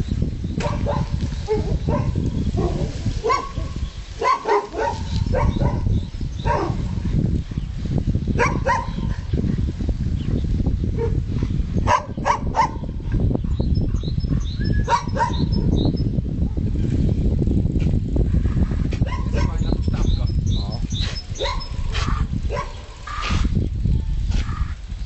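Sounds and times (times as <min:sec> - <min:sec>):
dog barking: 0:00.6 - 0:06.9, 0:08.4 - 0:09.2, 0:11.8 - 0:13.0, 0:14.8 - 0:15.6, 0:19.0 - 0:19.7, 0:21.4 - 0:23.3.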